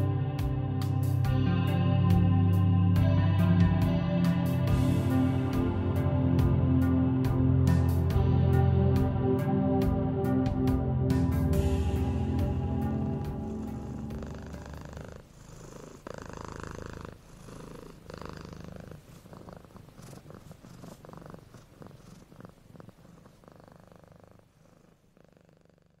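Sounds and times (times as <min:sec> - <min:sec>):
background music: 0:00.0 - 0:15.2
cat purring: 0:11.6 - 0:26.0.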